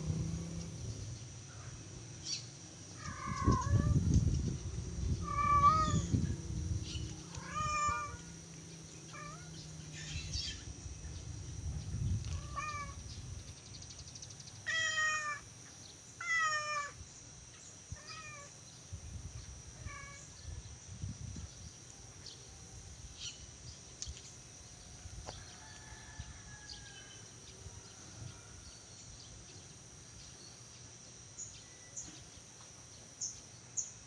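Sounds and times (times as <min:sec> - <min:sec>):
low rumble: 0:00.0 - 0:02.2, 0:03.1 - 0:08.4
cat meowing: 0:05.2 - 0:06.1, 0:07.4 - 0:08.2, 0:12.3 - 0:13.0.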